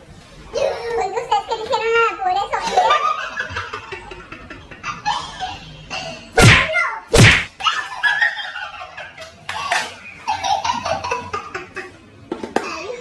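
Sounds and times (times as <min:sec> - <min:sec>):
loud slaps of plates into faces: 0:06.4 - 0:07.5.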